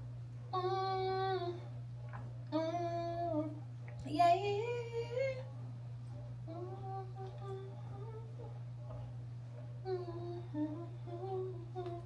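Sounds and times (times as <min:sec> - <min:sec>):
low hum: 0:00.0 - 0:12.0
woman singing long notes: 0:09.8 - 0:12.0.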